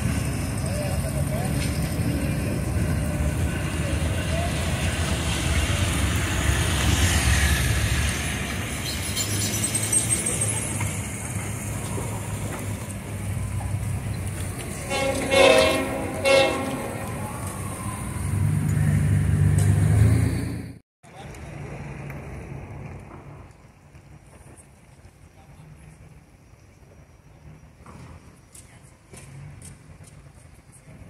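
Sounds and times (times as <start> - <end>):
diesel locomotives rumbling: 0.0 - 31.0
train cars rolling on rails: 0.0 - 31.0
locomotive horn blasts: 14.7 - 17.5.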